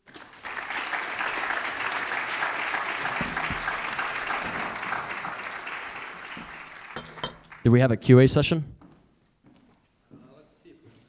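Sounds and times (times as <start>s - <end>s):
audience applause: 0.0s - 7.7s.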